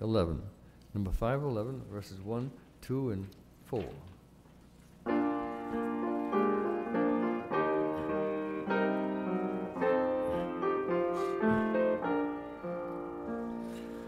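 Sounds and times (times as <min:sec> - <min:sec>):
piano playing hymn chords: 0:05.0 - 0:14.0.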